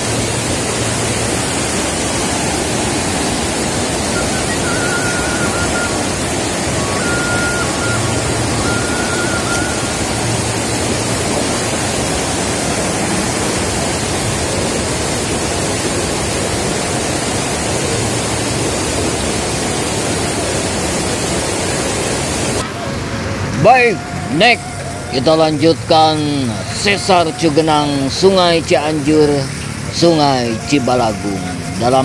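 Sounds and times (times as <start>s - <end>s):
river rushing: 0.0s - 32.0s
high whistle-like tone: 3.9s - 11.1s, 23.9s - 28.2s.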